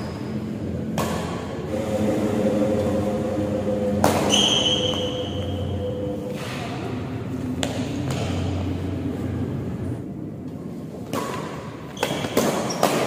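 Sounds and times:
high steady ringing tone: 1.7 - 7.4.

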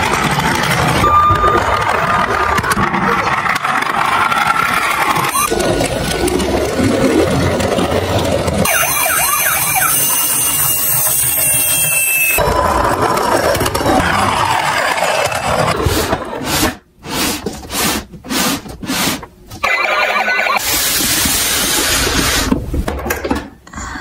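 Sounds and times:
toy electronic siren wailing: 1.0 - 2.3, 5.1 - 5.5, 8.6 - 12.4.

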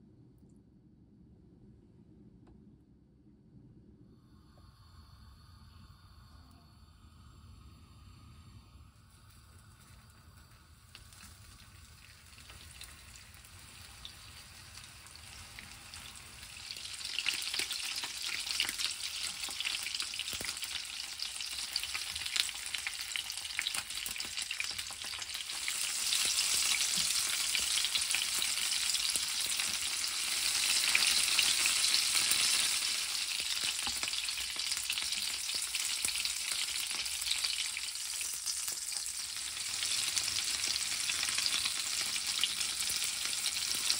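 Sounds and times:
food sizzling in oil: 9.6 - 43.9.

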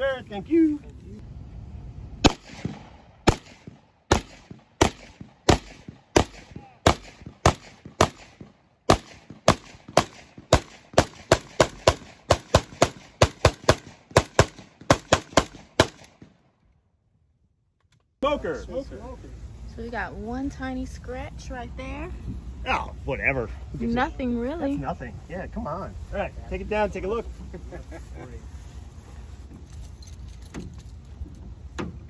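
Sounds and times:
rifle shots: 2.2 - 16.4.

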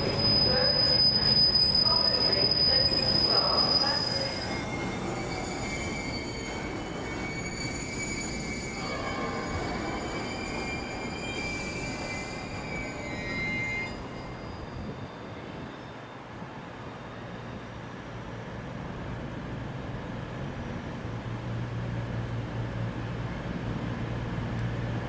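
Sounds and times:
train wheels squealing: 0.0 - 18.4
train rolling on track: 0.0 - 25.0.

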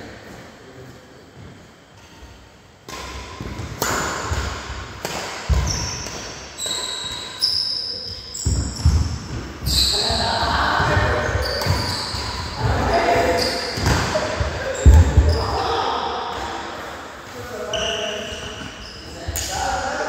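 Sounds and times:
racket striking shuttlecock: 2.8 - 6.4
shoe squeaks: 5.5 - 14.0, 17.6 - 19.4.

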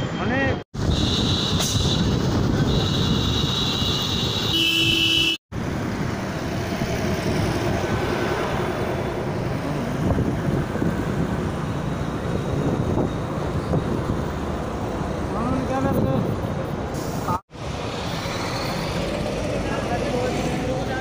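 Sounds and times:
road traffic noise: 0.0 - 21.0
vehicle horn: 0.8 - 5.4
wind on microphone: 7.0 - 14.4.

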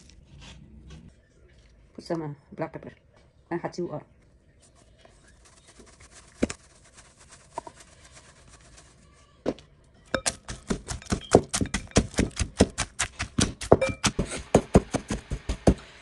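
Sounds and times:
wooden pestle pounding in metal bowl: 10.1 - 15.8.

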